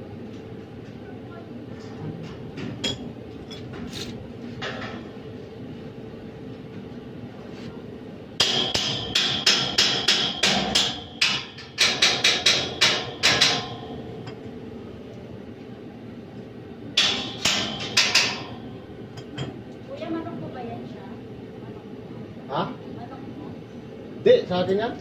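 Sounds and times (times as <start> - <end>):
hammer striking metal grill: 8.4 - 14.0, 17.0 - 19.5.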